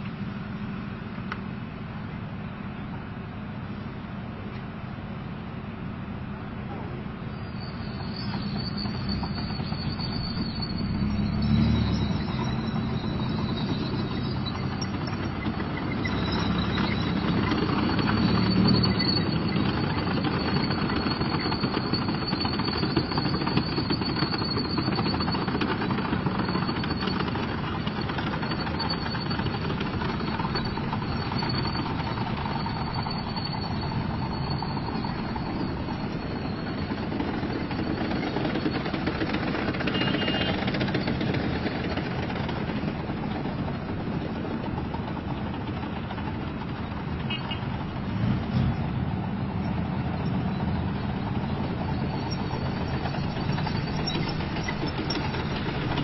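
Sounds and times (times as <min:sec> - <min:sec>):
tank diesel engine droning: 0:00.0 - 0:56.0.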